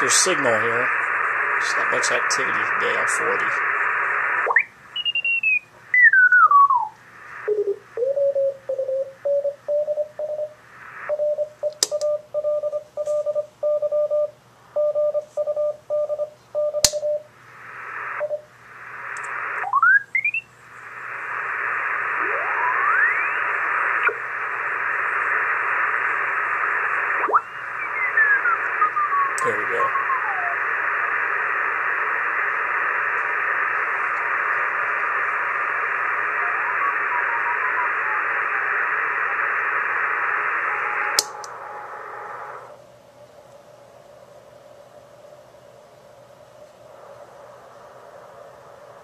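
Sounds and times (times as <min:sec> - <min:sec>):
radio band hiss: 0:00.0 - 0:04.6, 0:05.4 - 0:09.5, 0:10.2 - 0:11.1, 0:17.3 - 0:45.4, 0:46.0 - 0:49.0
sweeping radio whistles: 0:00.0 - 0:11.1, 0:17.7 - 0:42.8
faint higher morse signal: 0:00.0 - 0:43.9.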